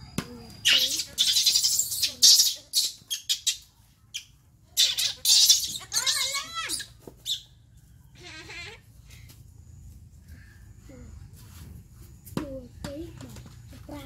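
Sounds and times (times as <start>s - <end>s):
monkey squealing call: 0.6s - 7.5s
rustling and scuffling: 8.9s - 14.0s.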